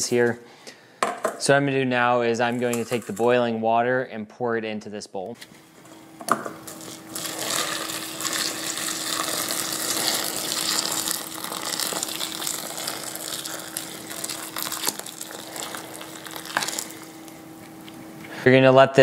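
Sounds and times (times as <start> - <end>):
water pouring into a steel bowl: 6.7 - 17.0.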